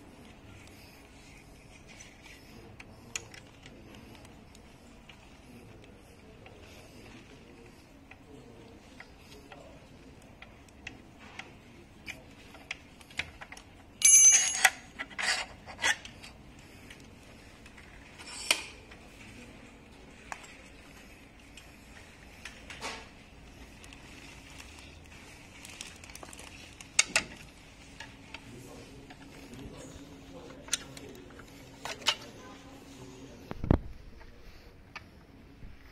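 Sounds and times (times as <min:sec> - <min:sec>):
hand tools clinking on metal: 0:14.0 - 0:15.0
sharp clinks and knocks: 0:14.0 - 0:15.3.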